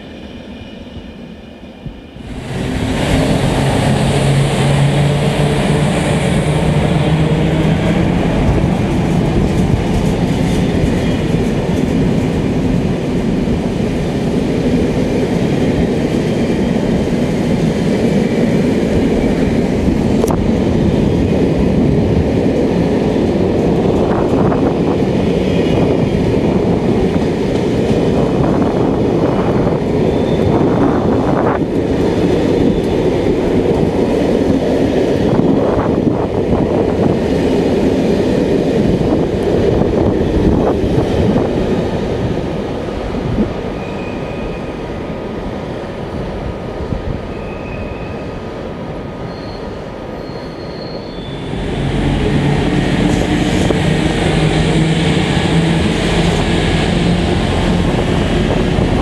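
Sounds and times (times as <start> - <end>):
steel wheels rumbling on rail: 0.0 - 59.0.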